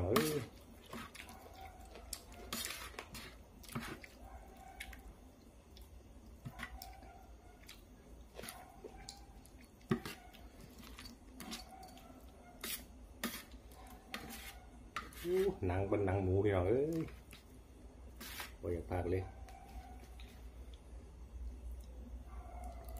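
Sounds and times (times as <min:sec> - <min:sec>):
wet chewing: 0:00.3 - 0:05.1, 0:05.7 - 0:12.1
spoon scraping metal tray: 0:02.4 - 0:04.0, 0:12.6 - 0:15.6, 0:18.2 - 0:18.6.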